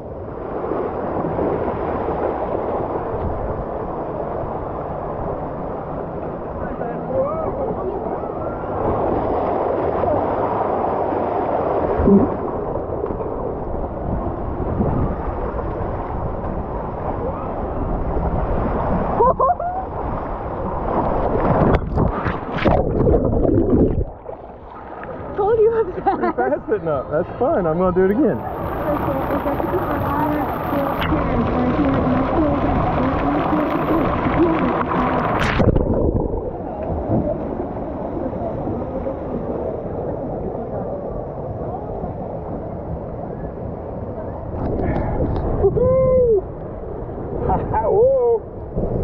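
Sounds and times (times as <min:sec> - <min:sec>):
water rushing down waterslide: 0:00.0 - 0:25.8, 0:28.2 - 0:49.0
wind on microphone: 0:08.4 - 0:24.5, 0:28.2 - 0:49.0.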